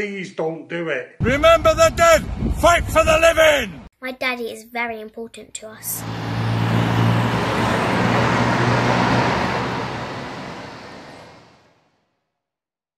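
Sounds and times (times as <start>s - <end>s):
tyre and road noise: 5.9s - 11.7s
vehicle engine humming: 5.9s - 11.7s.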